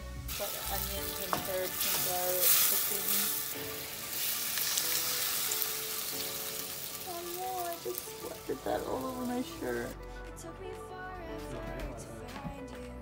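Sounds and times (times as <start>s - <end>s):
onions and garlic sizzling: 0.2s - 10.0s.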